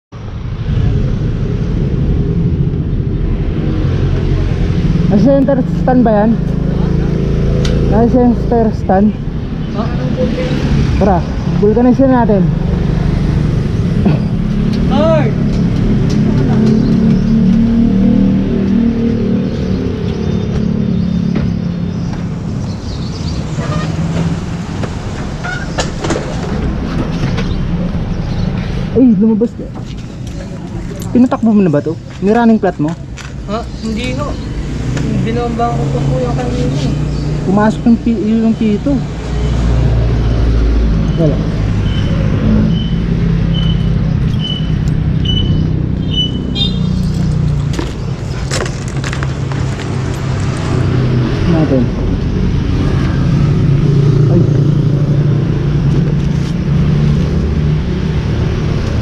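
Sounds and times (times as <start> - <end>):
short high beeps: 41.2 - 46.9.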